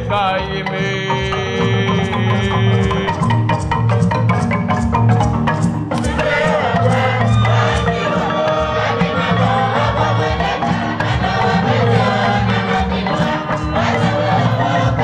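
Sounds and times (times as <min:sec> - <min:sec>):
bass line: 0:00.0 - 0:05.4
drum strokes: 0:00.0 - 0:15.0
percussive backing: 0:00.0 - 0:15.0
women's choir singing: 0:06.0 - 0:15.0.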